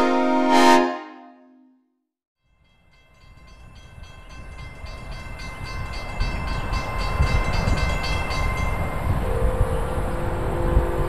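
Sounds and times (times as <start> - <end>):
train rumble: 2.9 - 11.0.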